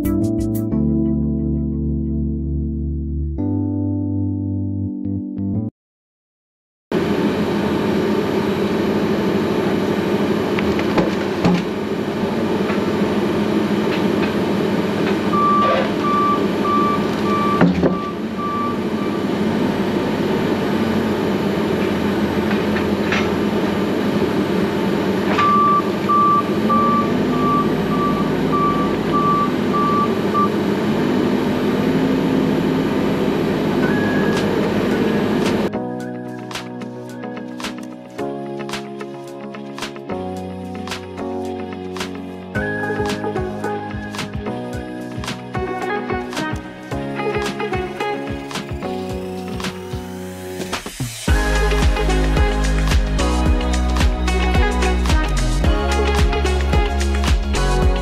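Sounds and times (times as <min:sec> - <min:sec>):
diesel engine running and revving: 0:12.0 - 0:35.7
reversing alarm beeps: 0:15.3 - 0:19.4, 0:25.4 - 0:30.6, 0:33.8 - 0:35.4.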